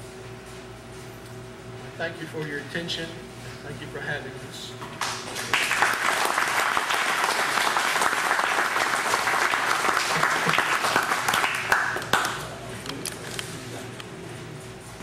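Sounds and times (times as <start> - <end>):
audience applauding: 5.0 - 12.4.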